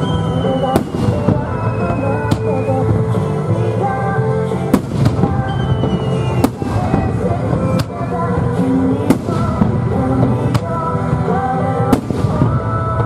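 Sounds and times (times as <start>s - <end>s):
firework bangs: 0.0s - 3.2s, 4.7s - 13.0s
music playing: 0.0s - 13.0s.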